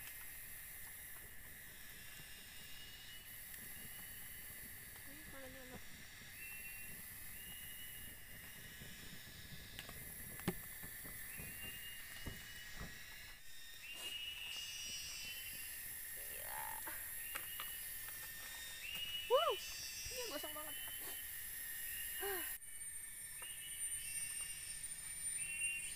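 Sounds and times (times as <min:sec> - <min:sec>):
insects buzzing: 0:00.0 - 0:25.9
fire crackling pops: 0:03.3 - 0:13.4.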